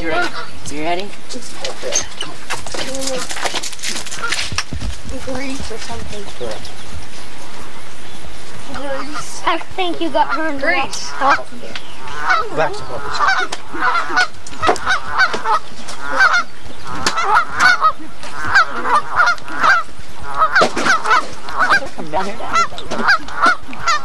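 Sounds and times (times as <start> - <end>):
geese honking: 0.0 - 1.0, 5.2 - 24.0.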